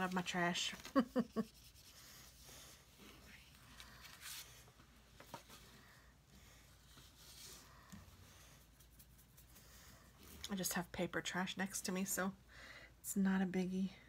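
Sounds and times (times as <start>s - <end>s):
pen strokes on paper: 1.2s - 3.5s
paper rustling: 3.4s - 5.8s.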